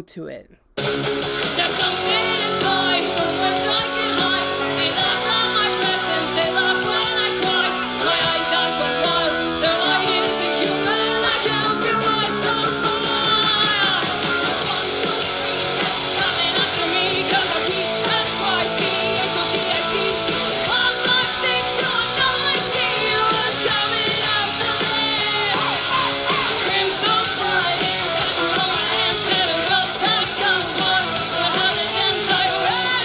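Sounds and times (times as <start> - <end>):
drums: 0.0 - 33.0
electric guitar: 0.8 - 33.0
woman singing: 1.6 - 33.0.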